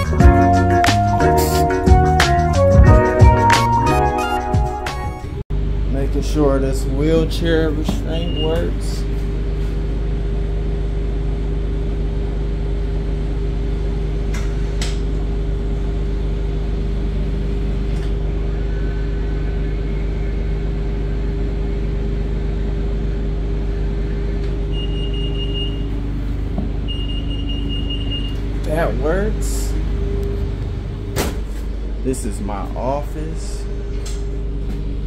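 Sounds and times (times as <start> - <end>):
bus engine idling hum: 14.2 - 35.0
short high beeps: 24.7 - 25.8.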